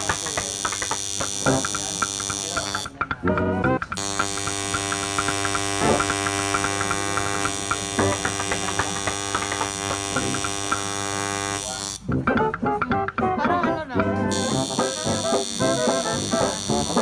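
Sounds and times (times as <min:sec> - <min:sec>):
tattoo machine buzzing: 0:00.0 - 0:02.9, 0:04.0 - 0:12.0, 0:14.3 - 0:17.0
faint ticks: 0:03.9 - 0:12.0.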